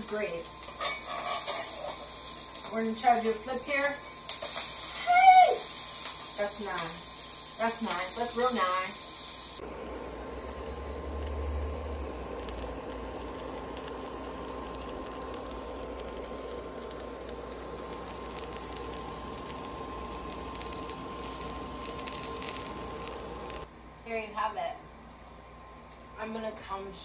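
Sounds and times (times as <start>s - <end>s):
sandwich sizzling in a skillet: 0.0s - 23.7s.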